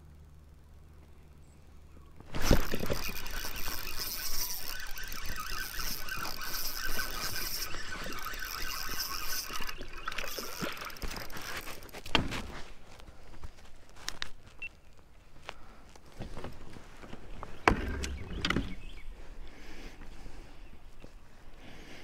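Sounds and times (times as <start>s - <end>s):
fishing reel gears whirring: 2.2s - 12.0s.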